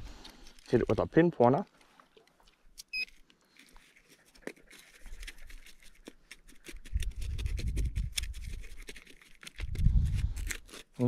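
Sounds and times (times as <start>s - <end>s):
scraping through gritty soil: 3.4s - 11.0s.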